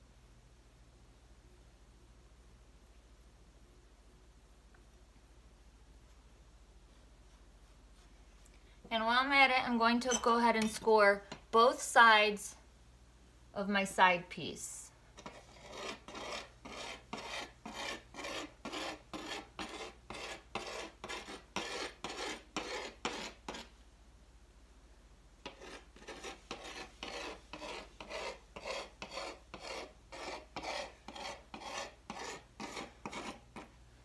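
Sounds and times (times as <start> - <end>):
tool scratching clay: 15.2 - 23.7, 25.4 - 33.7.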